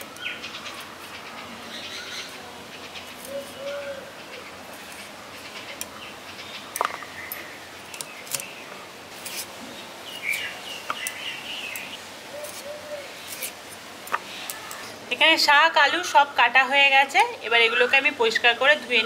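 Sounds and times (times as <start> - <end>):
birds chirping: 0.0 - 9.0, 9.7 - 13.5.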